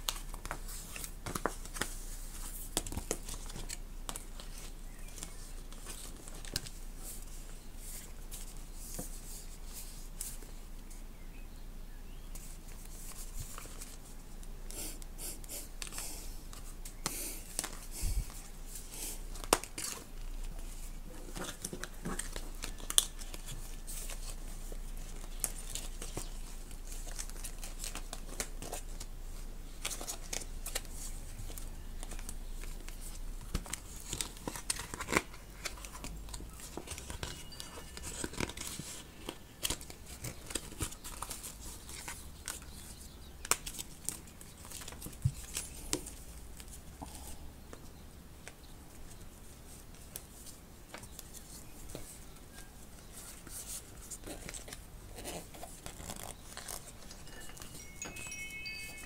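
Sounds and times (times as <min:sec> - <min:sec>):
plastic packaging crinkling: 0:29.8 - 0:46.7, 0:53.2 - 0:59.0.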